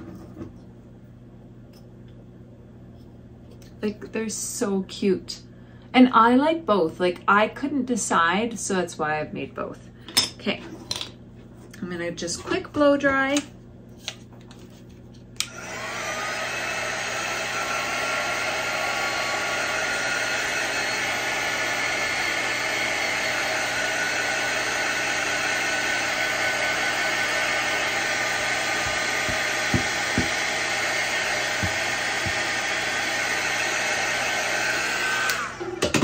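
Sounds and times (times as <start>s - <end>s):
blow dryer whirring: 15.4s - 36.0s.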